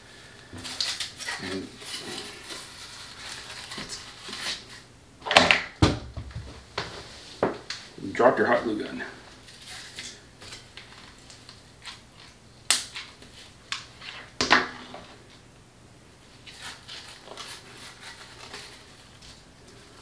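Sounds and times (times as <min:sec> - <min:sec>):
sharp knocks: 0:05.4 - 0:06.6.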